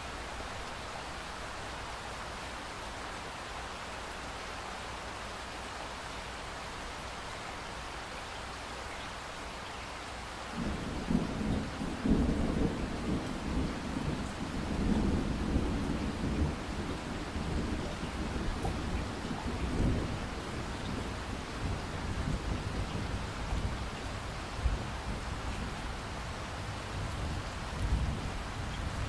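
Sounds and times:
rain hissing: 0.0 - 29.0
thunder rumbling: 10.6 - 23.9.

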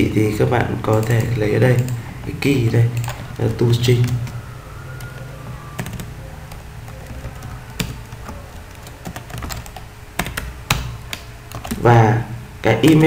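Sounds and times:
steady low hum: 0.0 - 13.0
computer keyboard keystrokes: 0.9 - 2.0, 5.8 - 11.8.

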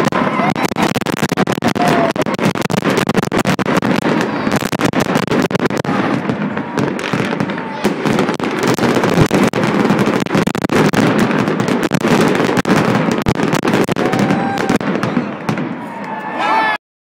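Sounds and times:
fireworks crackling and popping: 0.0 - 16.3
fireworks bangs: 0.0 - 16.4.

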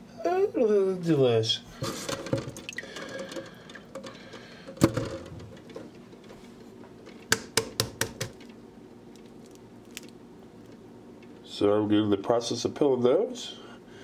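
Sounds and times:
egg tapping on countertop: 7.3 - 8.4.

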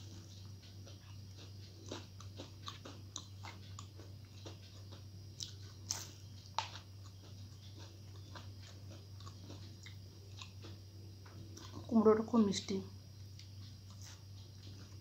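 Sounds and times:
person biting and chewing food: 0.0 - 11.9
steady low hum: 0.0 - 15.0.

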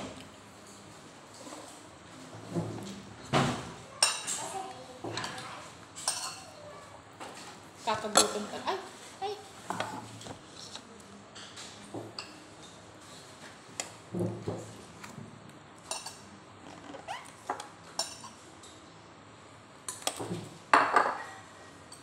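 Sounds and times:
bowls and spoons clinking: 4.0 - 6.6.

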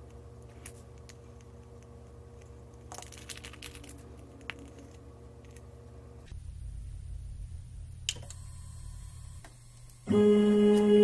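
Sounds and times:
steady low hum: 0.0 - 11.0
tape clicks and crinkles: 0.4 - 5.7.

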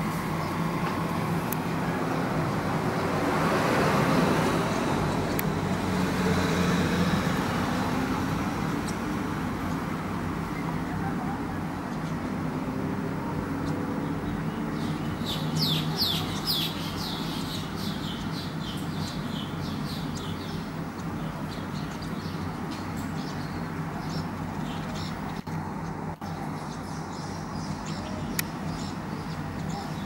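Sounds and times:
bird chirping: 13.6 - 30.0.

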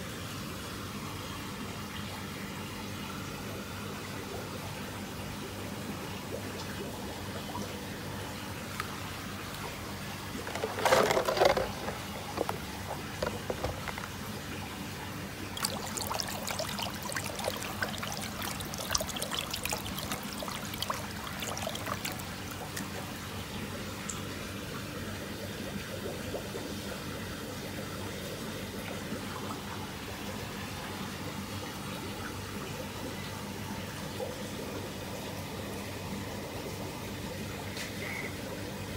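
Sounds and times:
low steady hum: 0.0 - 38.9
water sloshing and splashing: 8.7 - 24.3.

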